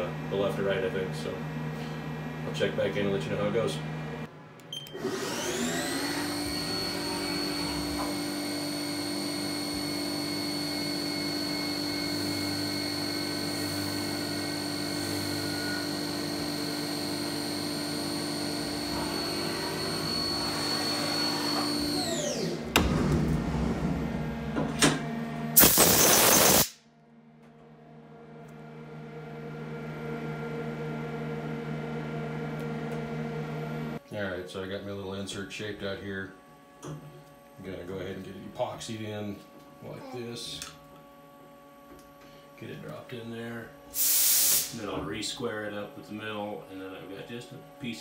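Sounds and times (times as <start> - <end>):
milling machine spindle whine: 5.0 - 22.8
loud hiss: 25.6 - 26.8, 44.0 - 44.8.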